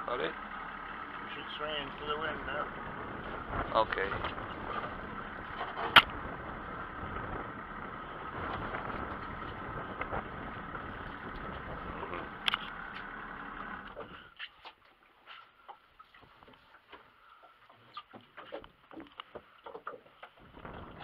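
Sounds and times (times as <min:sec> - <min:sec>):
boat engine idling: 0:00.0 - 0:14.8.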